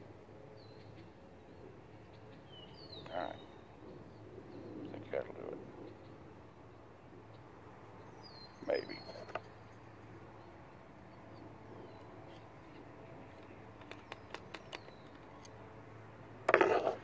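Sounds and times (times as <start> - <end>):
light clicks and taps of gun: 13.3 - 15.6.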